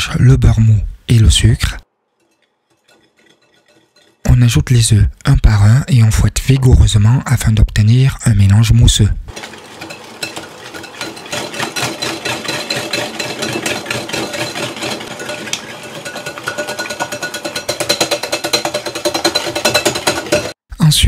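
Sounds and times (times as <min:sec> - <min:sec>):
whisk clicking against glass bowl: 0:02.2 - 0:04.4, 0:09.3 - 0:20.6.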